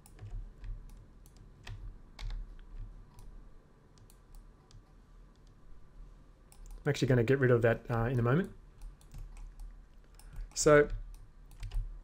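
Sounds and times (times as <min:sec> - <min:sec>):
low background hum: 0:00.0 - 0:12.0
mouse and keyboard clicks: 0:03.9 - 0:05.6.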